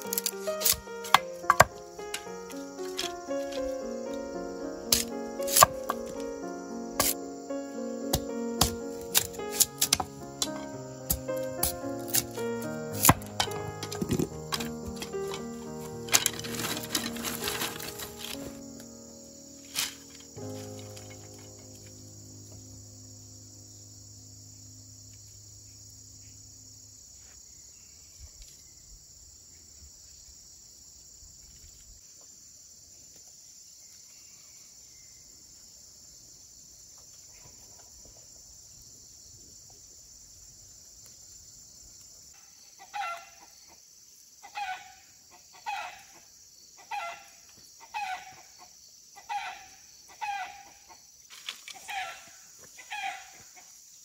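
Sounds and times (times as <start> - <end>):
insects chirring: 0.0 - 54.0
chicken calling: 44.4 - 45.0, 45.6 - 46.2, 46.8 - 48.5, 49.2 - 50.9, 51.8 - 53.4.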